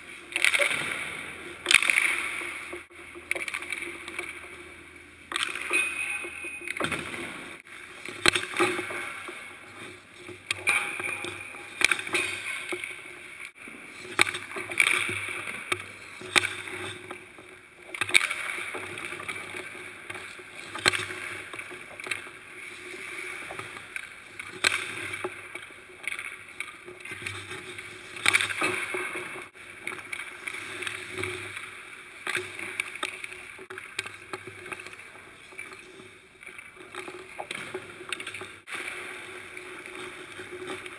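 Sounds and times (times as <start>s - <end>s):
skate blades scraping ice: 0.0s - 4.7s, 6.7s - 40.9s
hockey stick slapping puck: 0.3s - 4.4s, 6.7s - 13.2s, 14.1s - 17.3s, 17.9s - 22.3s.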